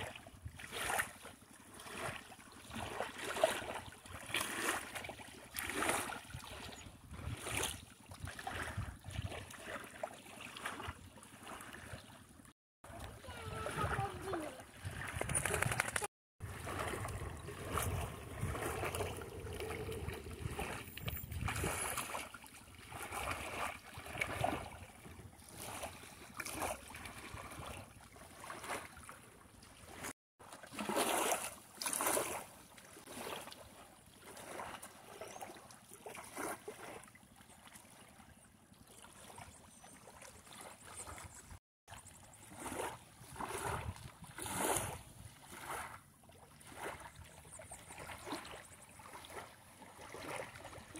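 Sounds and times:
small waves lapping on shore: 0.0s - 50.9s
wind on microphone: 6.3s - 9.4s, 13.2s - 22.0s, 43.2s - 45.4s.

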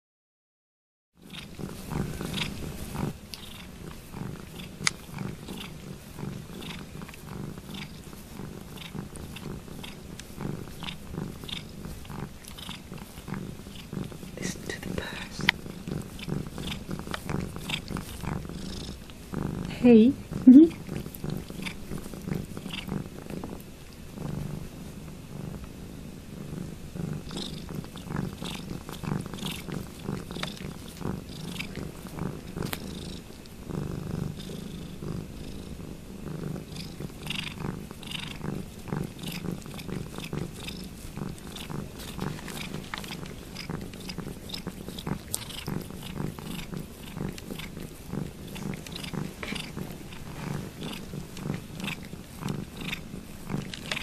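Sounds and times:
cat purring: 1.2s - 54.0s
cat licking slurps: 1.3s - 18.5s, 27.3s - 32.8s, 36.9s - 54.0s.

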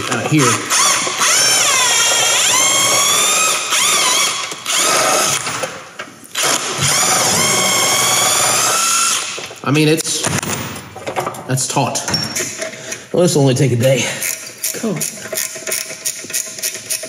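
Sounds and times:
cordless drill motor whine: 0.7s - 5.4s, 6.4s - 9.4s.

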